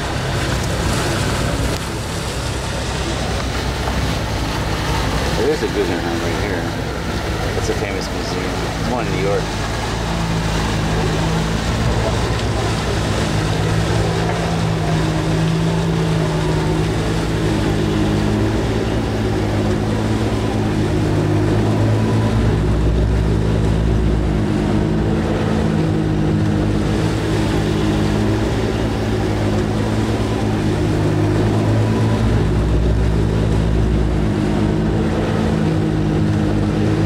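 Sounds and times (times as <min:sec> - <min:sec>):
boat diesel engine running: 0:00.0 - 0:37.0
water rushing along hull: 0:00.0 - 0:37.0.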